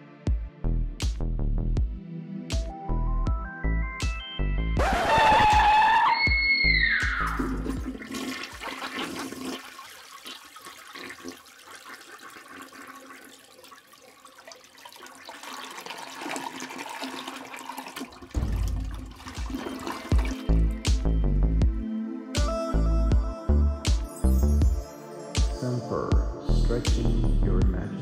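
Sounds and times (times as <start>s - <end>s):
urinal flushing: 7.2s - 21.0s.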